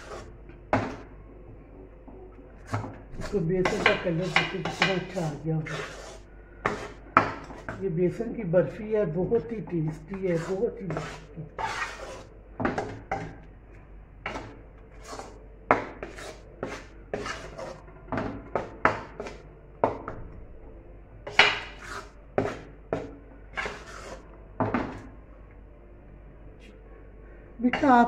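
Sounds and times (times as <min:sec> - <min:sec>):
metal spoon scraping a pot: 0:00.0 - 0:01.0, 0:02.6 - 0:07.8, 0:09.3 - 0:13.2, 0:14.3 - 0:17.8, 0:21.3 - 0:22.6, 0:23.5 - 0:24.3.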